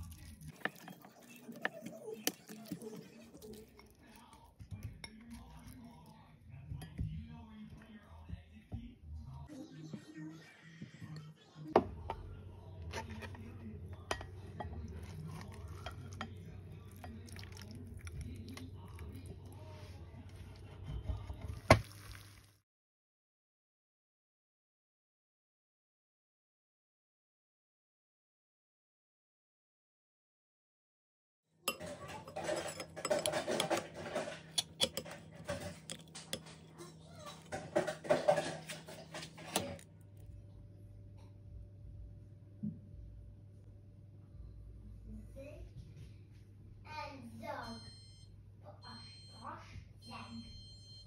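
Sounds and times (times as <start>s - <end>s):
metal spoon scraping glass dish: 31.7s - 36.6s
low steady hum: 31.7s - 51.0s.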